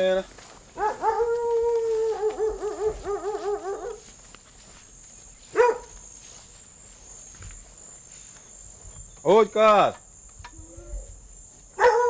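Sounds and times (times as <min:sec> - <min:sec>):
dog howling: 0:00.8 - 0:04.0, 0:11.8 - 0:12.0
dog yelping: 0:00.8 - 0:04.0, 0:05.6 - 0:05.9, 0:11.8 - 0:12.0.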